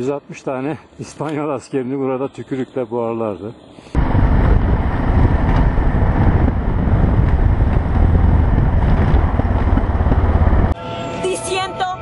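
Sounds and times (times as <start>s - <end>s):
motorcycle road and engine noise: 3.9s - 11.4s
wind buffeting microphone: 4.0s - 10.8s.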